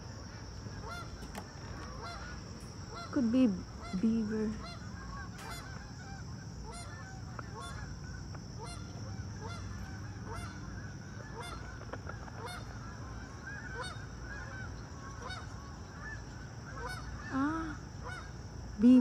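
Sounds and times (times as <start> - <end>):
flock of birds calling: 0.0 - 19.0.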